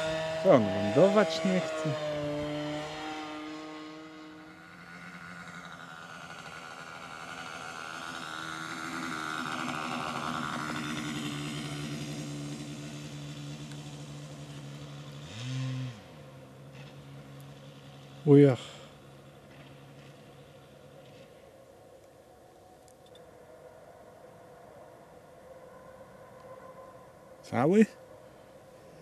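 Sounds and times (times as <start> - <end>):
model plane engine: 0.0 - 21.7.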